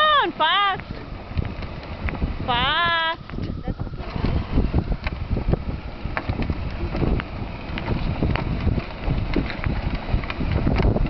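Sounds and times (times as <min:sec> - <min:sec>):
plastic wheels rolling on asphalt: 0:00.0 - 0:11.0
wind buffeting microphone: 0:00.0 - 0:11.0.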